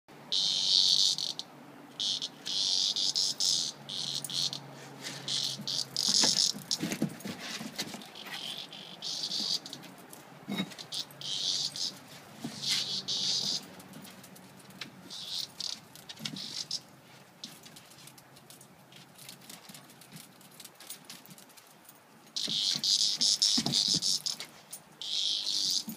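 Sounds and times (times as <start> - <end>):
cicada buzzing in harsh bursts: 0.3 - 6.9, 8.0 - 9.9, 10.7 - 13.8, 15.1 - 16.9, 22.4 - 25.9.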